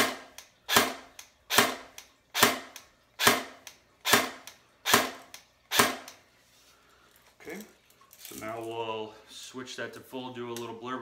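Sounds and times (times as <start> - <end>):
airsoft rifle shots cracking: 2.4 - 6.1.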